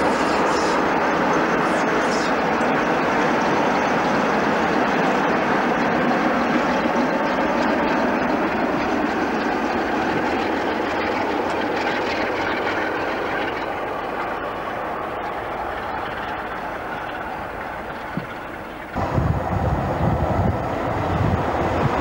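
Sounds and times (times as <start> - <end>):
diesel locomotives passing: 0.0 - 22.0.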